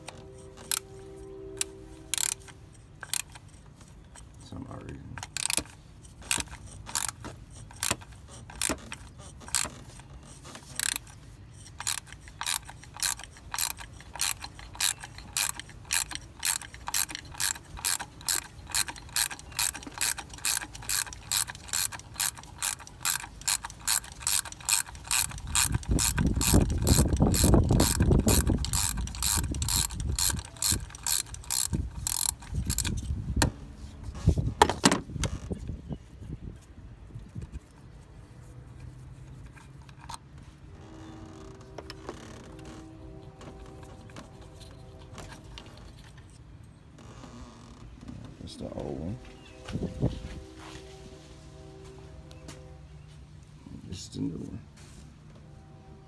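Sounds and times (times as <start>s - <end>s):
hand ratchet clicking: 0.0s - 1.0s, 1.6s - 4.4s, 5.2s - 33.2s.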